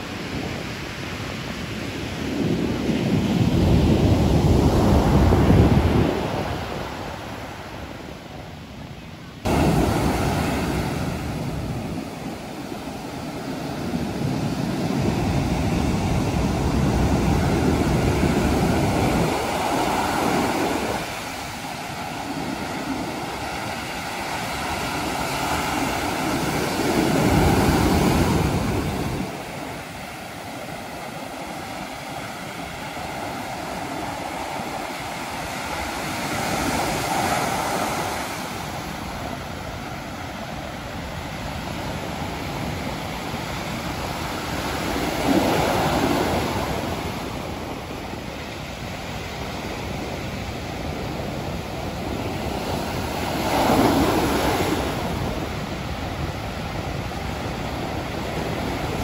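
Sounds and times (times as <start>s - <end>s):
sea waves crashing on beach: 0.0s - 59.0s.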